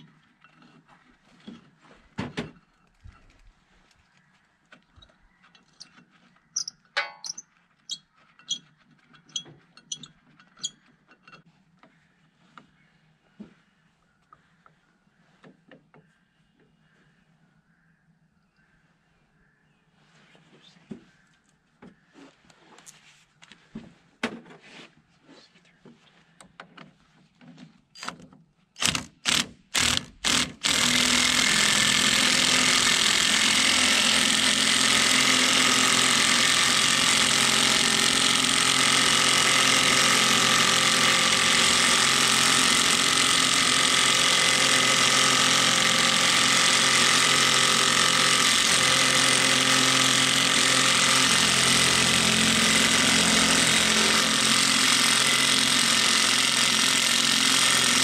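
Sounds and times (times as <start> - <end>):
impact wrench hammering: 6.6 - 7.4, 28.8 - 58.0.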